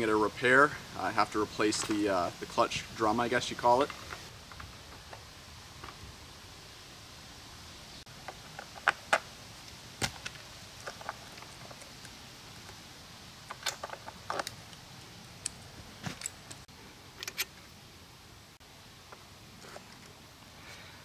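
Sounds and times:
metallic clicks of parts handled: 0:15.4 - 0:17.6.

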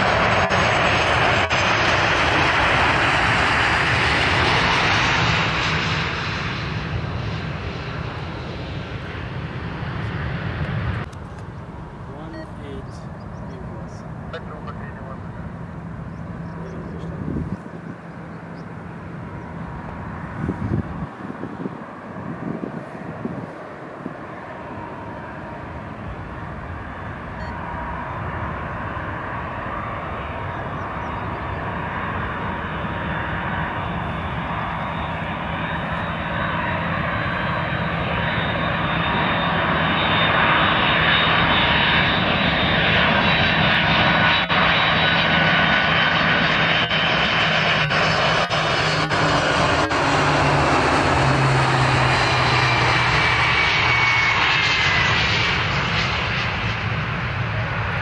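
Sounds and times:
jet engine whine: 0:00.0 - 0:58.0
jet engines rushing: 0:00.0 - 0:58.0.

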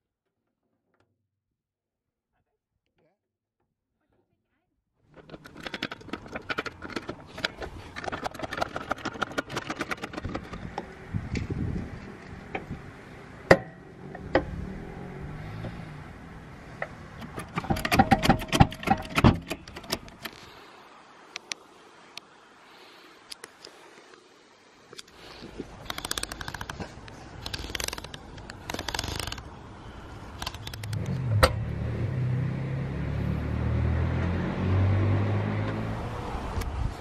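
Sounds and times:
metal rattling: 0:05.1 - 0:10.8, 0:16.8 - 0:20.4
trolley jack clicking and clattering: 0:05.1 - 0:10.9, 0:16.8 - 0:20.4
sharp metal clack: 0:17.2 - 0:20.3.

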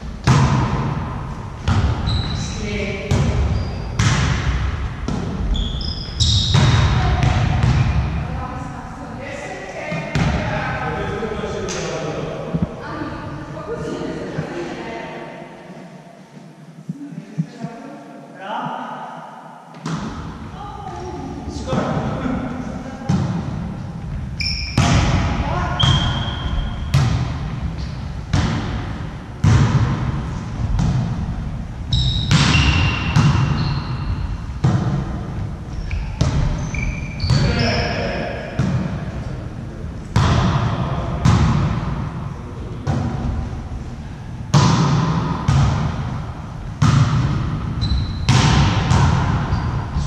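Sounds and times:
volleyball hits echoing: 0:00.2 - 0:02.1, 0:03.0 - 0:05.5, 0:06.3 - 0:08.3, 0:19.7 - 0:21.0, 0:23.0 - 0:23.7, 0:24.6 - 0:31.3, 0:32.1 - 0:35.5, 0:37.2 - 0:39.2, 0:40.1 - 0:43.5, 0:44.5 - 0:49.8
short high squeaks: 0:05.5 - 0:06.6, 0:24.4 - 0:24.8, 0:35.8 - 0:37.9.

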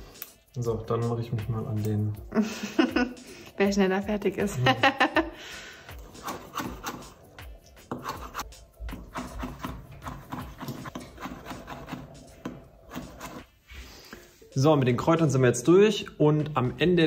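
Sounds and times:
knife chopping on cutting board: 0:06.1 - 0:07.1, 0:07.8 - 0:13.4.

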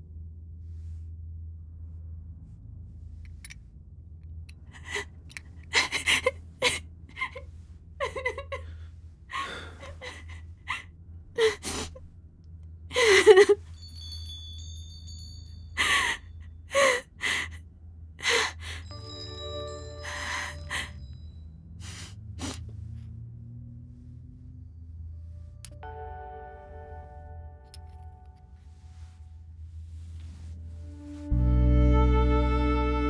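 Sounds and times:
low steady hum: 0:00.0 - 0:33.0
woman sobbing: 0:04.7 - 0:12.0, 0:12.9 - 0:13.7, 0:15.8 - 0:17.6, 0:18.2 - 0:19.0, 0:20.0 - 0:21.0
faint high bell-like tones: 0:13.6 - 0:16.4, 0:18.8 - 0:21.8.

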